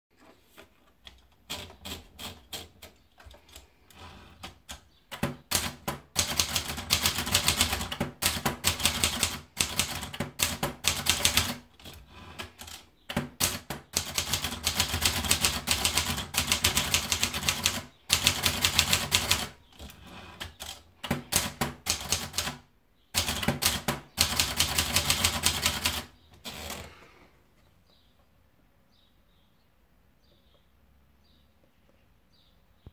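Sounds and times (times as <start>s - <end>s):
typewriter typing clatter: 1.3s - 22.6s, 23.2s - 26.8s.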